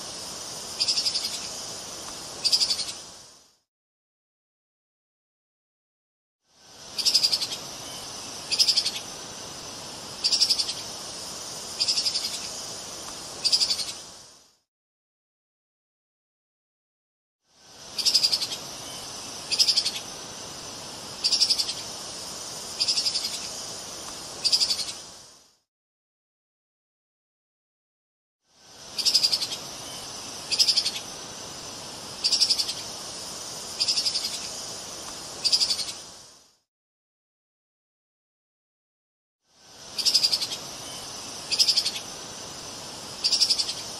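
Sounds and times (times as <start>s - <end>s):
steady high hiss: 0.0s - 3.7s, 6.4s - 14.7s, 17.4s - 25.7s, 28.5s - 36.7s, 39.5s - 43.9s.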